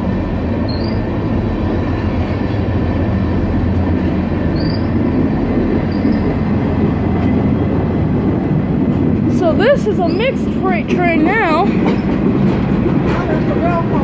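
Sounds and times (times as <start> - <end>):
freight train wheels rumbling on rail: 0.0 - 14.0
high wheel squeaks: 0.6 - 1.2, 4.4 - 5.2, 5.8 - 6.6, 9.3 - 12.2.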